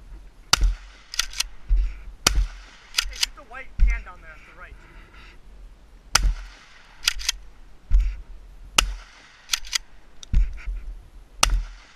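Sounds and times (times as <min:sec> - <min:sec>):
shotgun shots: 0:00.5 - 0:01.5, 0:02.2 - 0:04.0, 0:06.1 - 0:07.4, 0:08.8 - 0:09.9, 0:11.4 - 0:11.9
shotgun action clacking: 0:00.6 - 0:01.5, 0:02.9 - 0:03.4, 0:06.2 - 0:07.4, 0:08.8 - 0:09.9
spent shells ejected: 0:06.5 - 0:07.4, 0:09.0 - 0:09.9.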